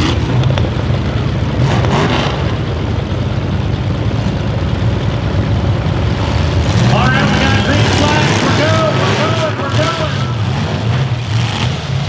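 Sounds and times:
engine revving: 0.0 - 3.0, 5.8 - 12.0
car engines rumbling: 0.0 - 12.0.

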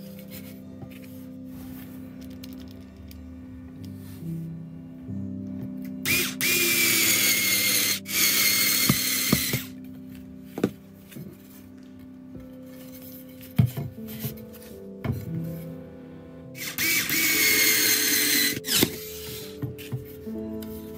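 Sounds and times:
background music: 0.0 - 20.9
electric screwdriver motor whining: 6.0 - 9.8, 16.6 - 19.6.

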